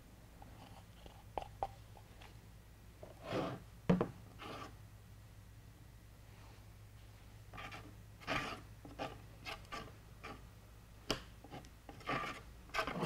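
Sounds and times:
low steady hum: 0.0 - 13.0
stick scraping gel on panel: 7.6 - 10.4, 11.5 - 13.0.

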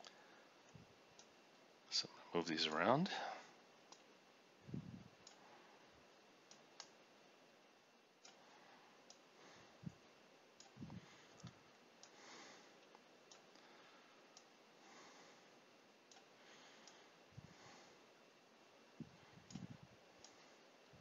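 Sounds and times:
soft low thumps: 4.6 - 5.3, 9.7 - 11.6, 19.0 - 20.0
computer mouse clicks: 5.2 - 5.4, 6.5 - 7.0, 10.6 - 12.2, 12.8 - 13.6, 16.1 - 17.0, 19.5 - 20.5.

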